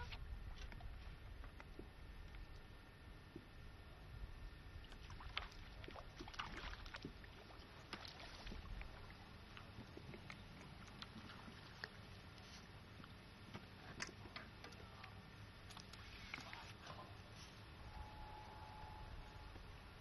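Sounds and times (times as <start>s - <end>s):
low background rumble: 0.0s - 20.0s
fish splashing in water: 4.8s - 13.4s.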